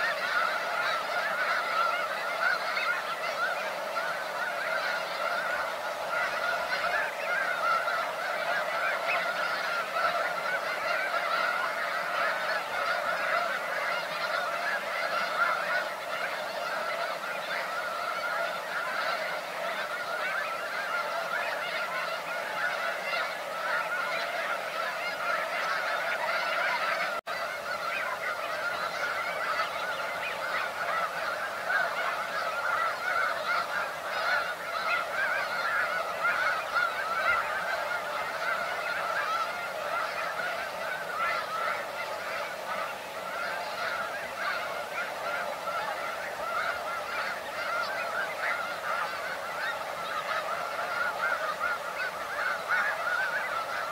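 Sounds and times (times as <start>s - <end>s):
flock of geese honking: 0.0s - 53.9s.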